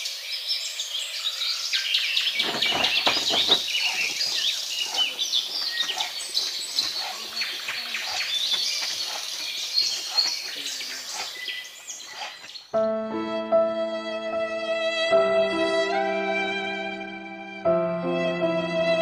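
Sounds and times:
small birds chirping: 0.0 - 12.8.

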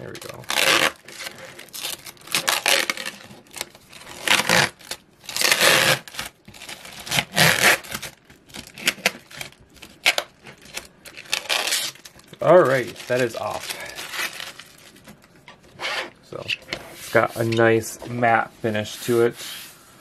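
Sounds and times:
plastic film crinkling: 0.0 - 15.8.

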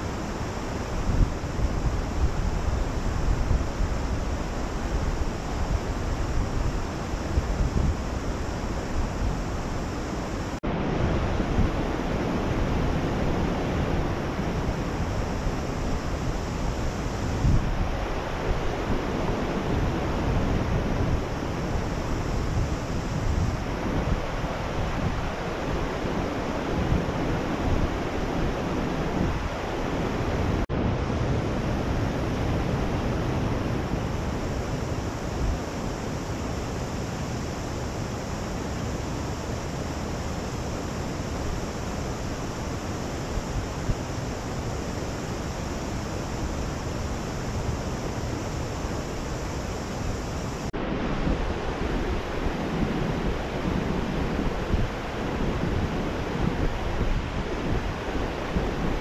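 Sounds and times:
stream water rushing: 0.0 - 59.0.

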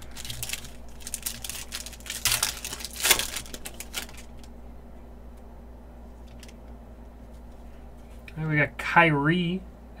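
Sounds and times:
foil wrapper tearing and crinkling: 0.0 - 4.5.

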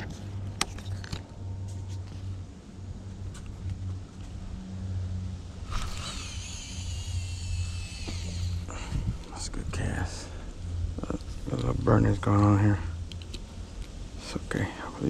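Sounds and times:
steady low rumble: 0.0 - 15.0
fishing reel spool whining: 5.6 - 8.9.

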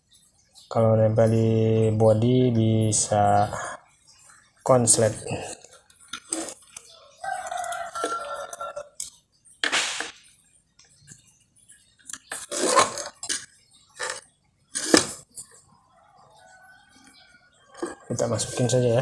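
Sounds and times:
rustling of wire bundles: 12.1 - 14.2.

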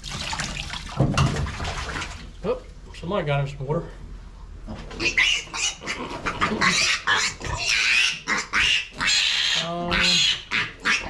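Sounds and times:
piglet squealing: 5.0 - 11.0.

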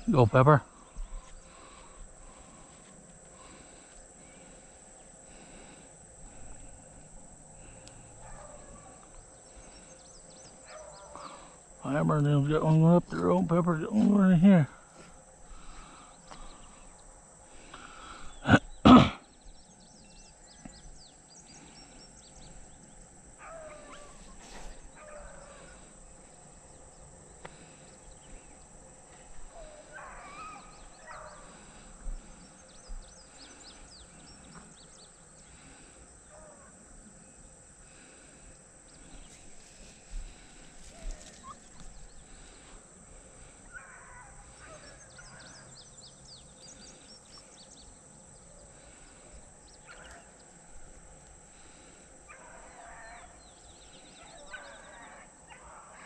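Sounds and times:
dogs baying: 7.7 - 12.0, 23.3 - 26.6, 27.5 - 34.7, 35.5 - 36.9, 40.3 - 45.8, 48.4 - 56.0.

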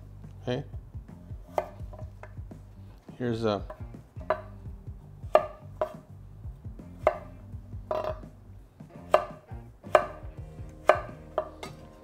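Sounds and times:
knife chopping on wooden board: 1.4 - 2.6, 3.7 - 4.6, 5.2 - 6.1, 6.8 - 12.0.

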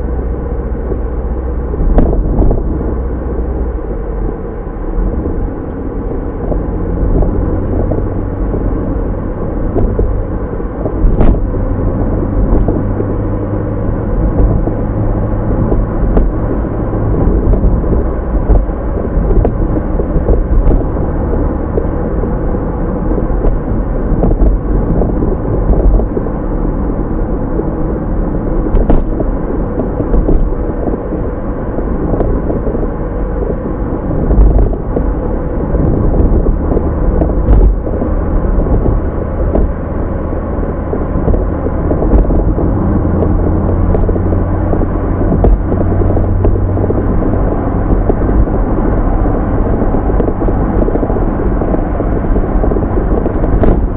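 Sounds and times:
sports car engine rumble: 0.0 - 53.9.

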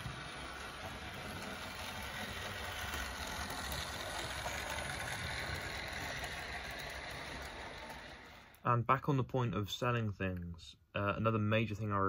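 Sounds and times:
model train running on track: 0.0 - 8.6.

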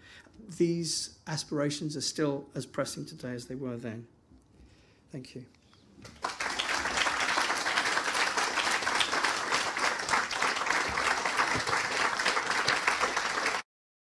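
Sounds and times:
audience applauding: 6.0 - 13.7.

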